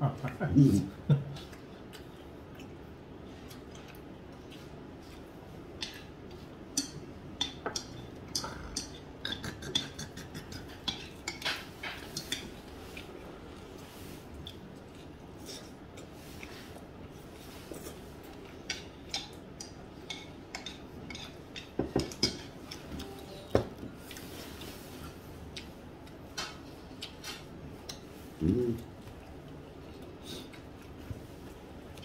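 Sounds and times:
utensils and dishes clinking: 0:20.1 - 0:23.8.

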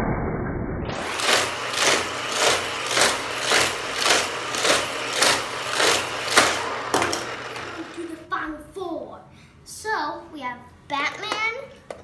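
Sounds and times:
motorized booster hum: 0:00.9 - 0:08.2.

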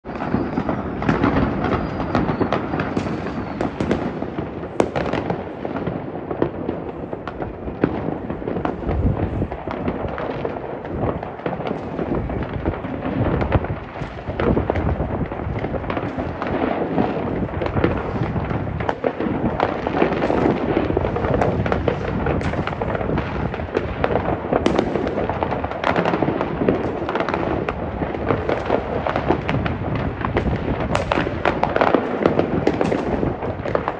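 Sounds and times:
fireworks bangs and crackling: 0:00.0 - 0:33.9
sharp firework bang: 0:17.3 - 0:27.4, 0:28.1 - 0:33.8.

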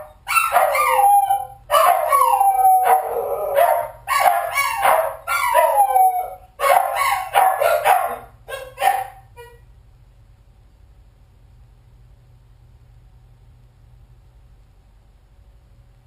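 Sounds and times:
dog howling and barking: 0:00.0 - 0:09.6.

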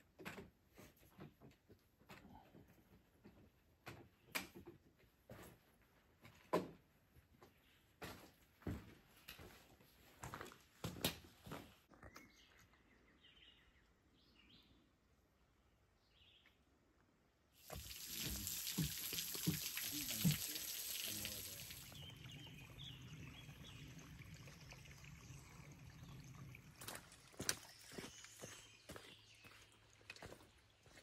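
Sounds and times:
water trickling into a pool: 0:17.6 - 0:28.5, 0:29.6 - 0:31.0
faint bird chirps: 0:27.3 - 0:29.7.

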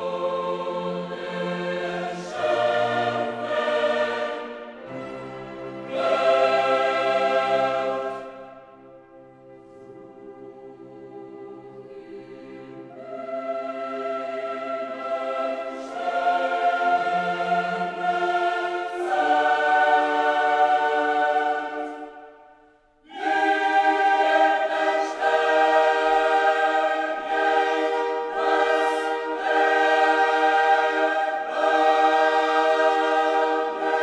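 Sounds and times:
choir singing sustained chords: 0:00.0 - 0:34.0.

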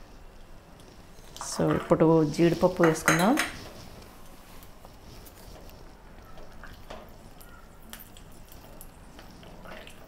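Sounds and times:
nuts frying in oil: 0:00.0 - 0:04.2, 0:04.9 - 0:10.0
spatula stirring: 0:00.8 - 0:10.0.

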